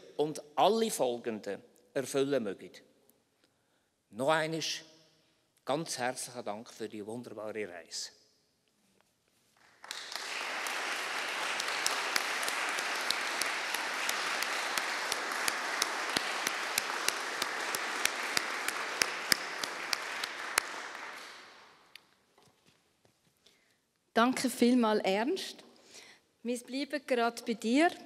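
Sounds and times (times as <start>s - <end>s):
audience applauding: 9.6s - 21.9s.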